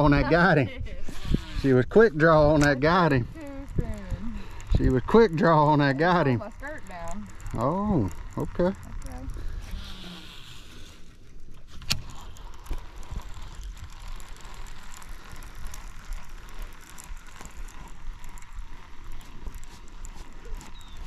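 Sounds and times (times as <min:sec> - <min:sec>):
wind rumble on microphone: 0:00.0 - 0:10.9
fishing gear clicking in boat: 0:02.1 - 0:21.0.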